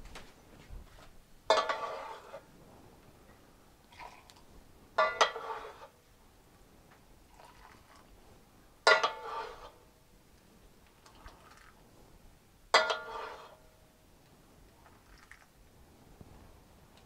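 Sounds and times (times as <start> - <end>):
metal utensil clinking on pot: 1.5 - 2.3, 5.0 - 5.8, 8.9 - 9.6, 12.8 - 13.5.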